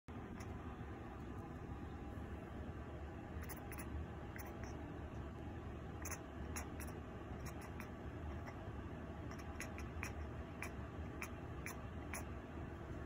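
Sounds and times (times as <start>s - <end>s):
cat chattering clicks and squeaks: 3.4s - 4.8s, 6.0s - 8.6s, 9.3s - 12.3s.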